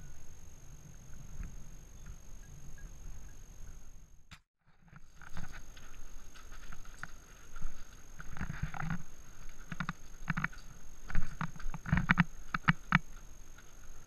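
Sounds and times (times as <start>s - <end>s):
wind rumble on microphone: 0.0s - 4.2s
stones scraping and clicking: 4.9s - 13.8s
footsteps crunching on gravel: 4.9s - 14.0s.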